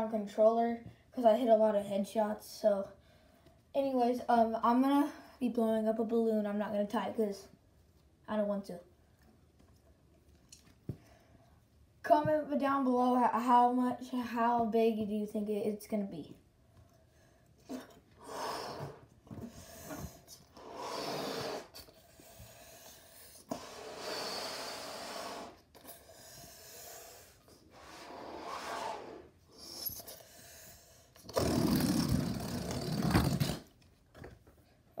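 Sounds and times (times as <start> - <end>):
breathy blows into balloon: 17.7 - 33.7.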